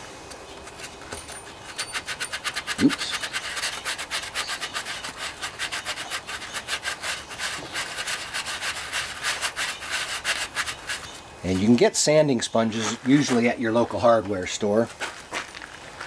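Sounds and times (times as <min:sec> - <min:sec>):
sanding sponge rasping on metal: 0:01.7 - 0:11.8.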